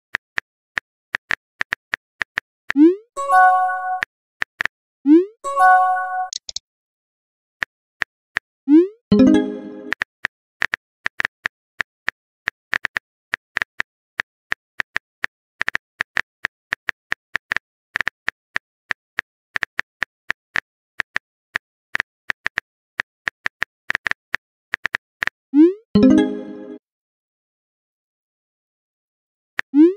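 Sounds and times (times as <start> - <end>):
phone keyboard typing clicks: 6.3 - 6.6.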